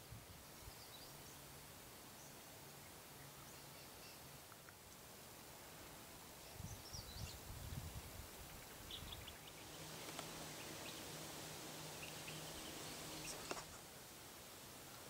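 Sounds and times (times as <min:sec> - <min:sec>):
faint low hum: 0:00.4 - 0:15.0
high bird chirps: 0:08.7 - 0:13.6.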